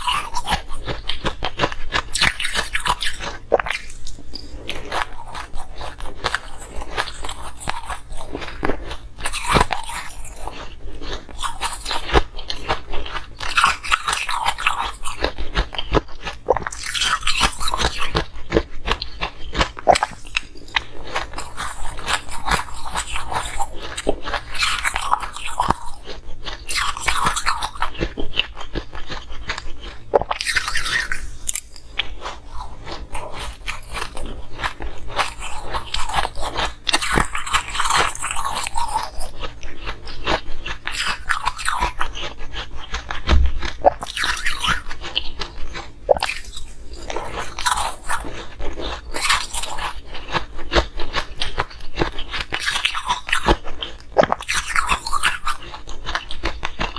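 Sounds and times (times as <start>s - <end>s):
chewing crunchy ice: 0.0s - 56.9s.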